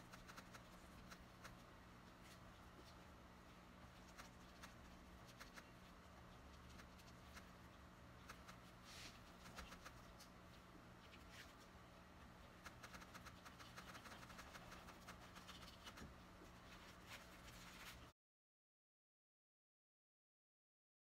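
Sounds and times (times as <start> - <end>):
low electrical hum: 0.0 - 18.1
paintbrush scratching on canvas: 12.6 - 16.1.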